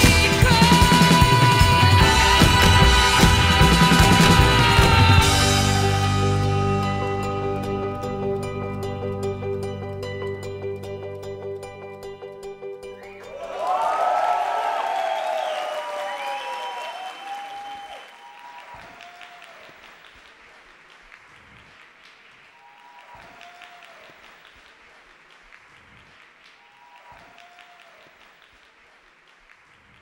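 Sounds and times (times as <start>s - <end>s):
audience applauding and cheering: 0.0s - 6.0s, 13.1s - 30.0s.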